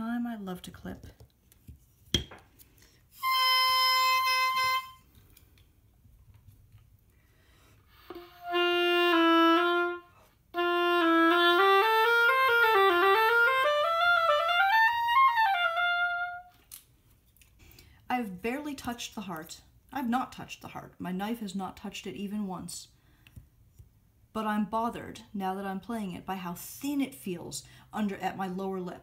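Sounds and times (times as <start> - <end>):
oboe playing: 3.1 - 5.1, 7.9 - 16.6.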